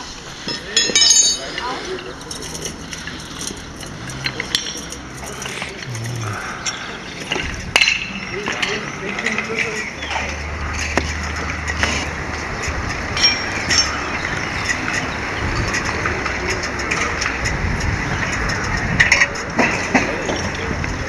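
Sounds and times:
low outdoor rumble: 0:01.8 - 0:09.6
aluminium ladder knocks and clinks: 0:13.1 - 0:14.0.

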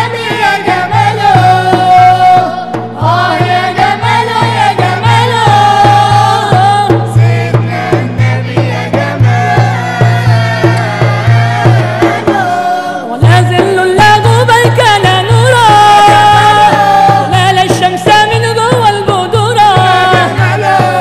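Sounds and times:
low drum beat: 0:00.0 - 0:21.0
men and women singing in chorus: 0:00.0 - 0:21.0.

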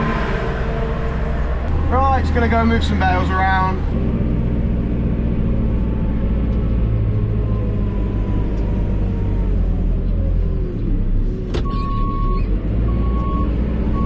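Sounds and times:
diesel engine running: 0:00.0 - 0:14.0.

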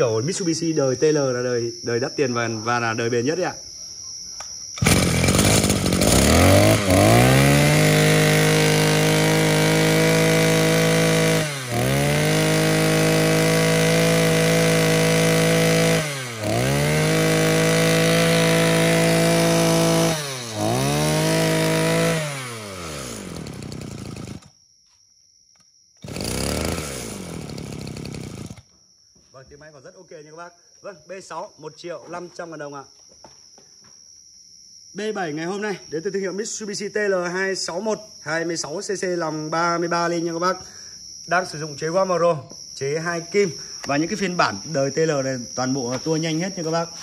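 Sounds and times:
brush-cutter engine revving: 0:04.8 - 0:24.5, 0:26.0 - 0:28.7.

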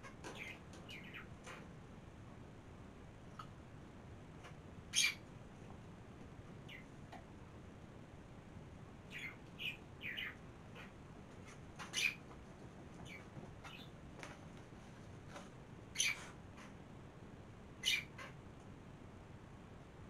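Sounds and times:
small birds chirping: 0:00.0 - 0:01.8, 0:04.4 - 0:05.3, 0:06.6 - 0:07.2, 0:09.0 - 0:14.4, 0:15.9 - 0:16.8, 0:17.8 - 0:18.4.

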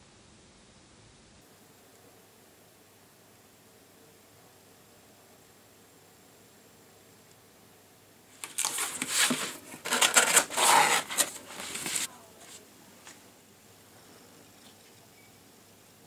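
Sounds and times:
cardboard box scraping and rustling: 0:08.4 - 0:12.1
cardboard flaps clicking: 0:08.4 - 0:12.1.

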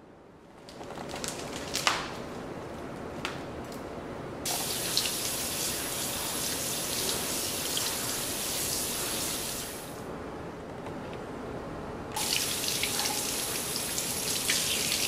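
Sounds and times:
kitchen faucet running: 0:04.5 - 0:10.0, 0:12.2 - 0:15.0.

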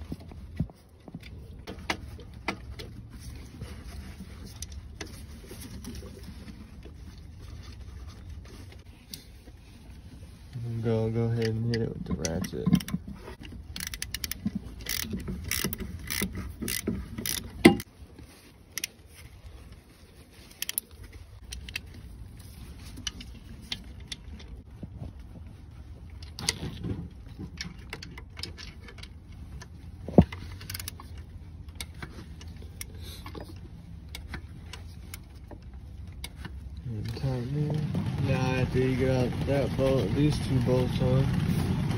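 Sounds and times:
socket ratchet clicking: 0:13.8 - 0:17.9.

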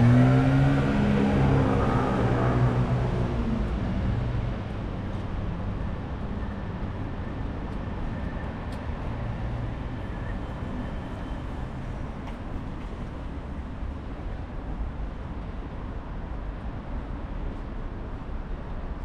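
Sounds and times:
passing vehicle engine: 0:00.0 - 0:06.4
traffic rumble: 0:00.0 - 0:19.0.

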